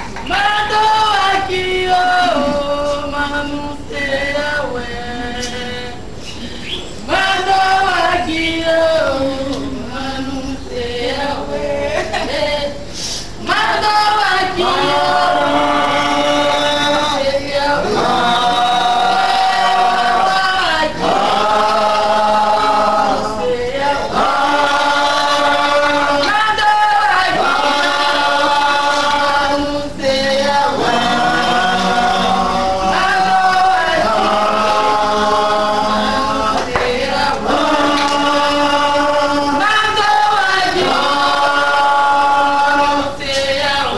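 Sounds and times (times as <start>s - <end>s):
group of voices chanting: 13.6s - 43.9s.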